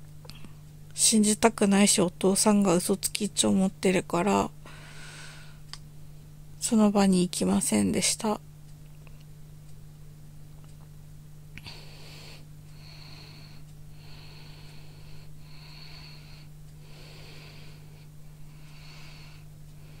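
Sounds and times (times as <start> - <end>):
steady low hum: 0.0 - 20.0
person breathing heavily: 4.6 - 5.6, 11.6 - 20.0.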